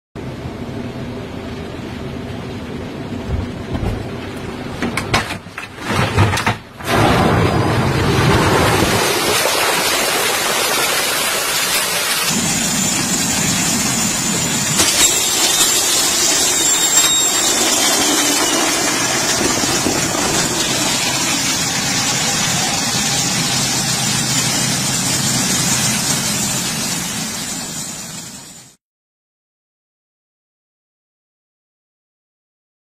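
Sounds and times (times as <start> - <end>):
thin high whistle: 14.7 - 19.3.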